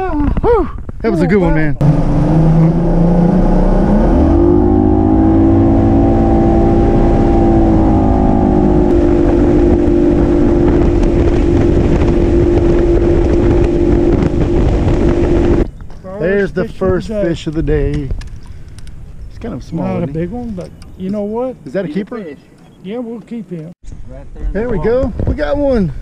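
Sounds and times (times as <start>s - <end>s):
outboard motor running: 1.8s - 15.6s.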